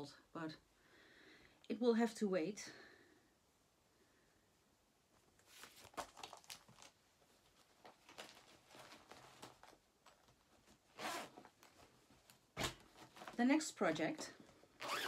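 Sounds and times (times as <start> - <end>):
fabric and bag rustling: 5.4 - 15.0.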